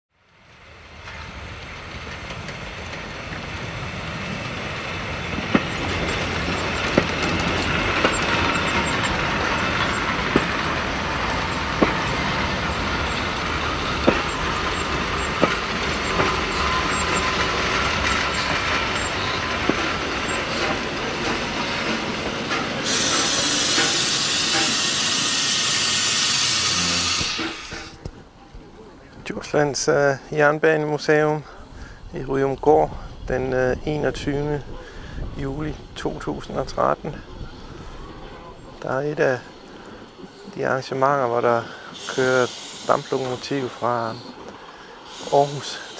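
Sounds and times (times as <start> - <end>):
steam train rolling past: 0.2 - 45.9
wheels clacking over rail joints: 0.9 - 25.3
loud hiss of escaping steam: 4.7 - 28.0, 39.4 - 45.9.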